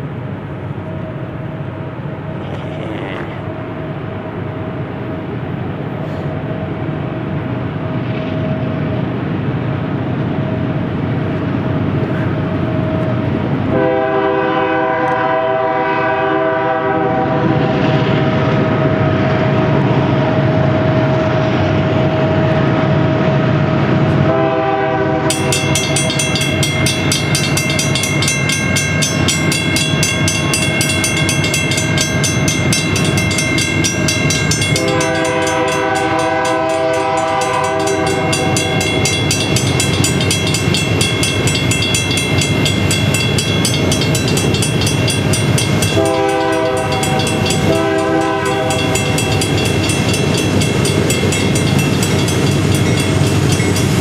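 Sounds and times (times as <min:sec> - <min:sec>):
train rumbling: 0:00.0 - 0:54.0
locomotive air horn blasts: 0:13.7 - 0:18.0, 0:24.2 - 0:25.3, 0:34.8 - 0:38.8, 0:45.9 - 0:49.0
crossing bell ringing: 0:25.2 - 0:54.0.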